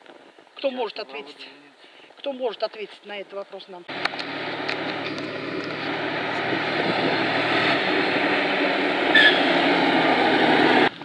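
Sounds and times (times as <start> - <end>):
truck engine and tyre noise: 3.9 - 11.0.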